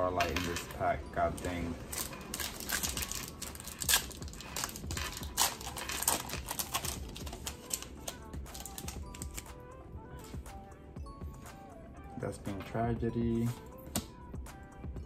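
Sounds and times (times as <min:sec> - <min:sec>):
foil pack crinkling and tearing: 0:01.4 - 0:09.5.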